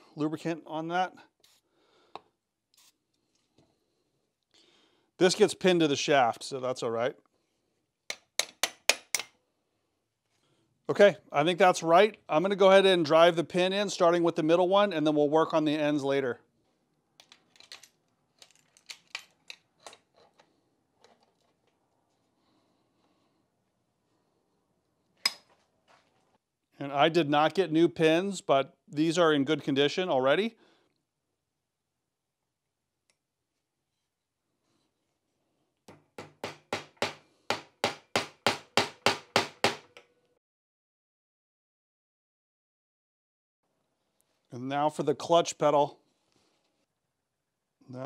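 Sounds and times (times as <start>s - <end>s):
hammer striking metal: 36.2s - 40.0s.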